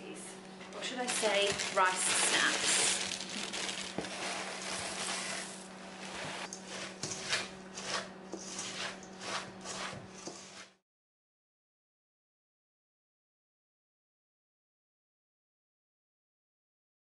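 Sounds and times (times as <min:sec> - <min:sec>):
wooden spoon stirring crunchy mixture: 0:00.8 - 0:10.8
cereal poured into metal bowl: 0:01.1 - 0:06.5.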